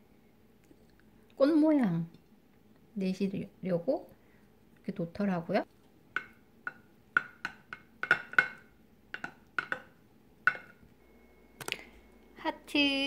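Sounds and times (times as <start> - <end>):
rice paddle tapping rice: 6.2 - 10.8.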